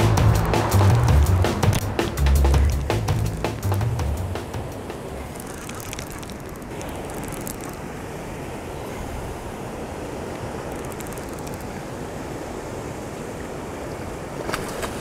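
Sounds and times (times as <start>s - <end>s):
faint clicks: 5.1s - 7.9s, 10.6s - 11.8s.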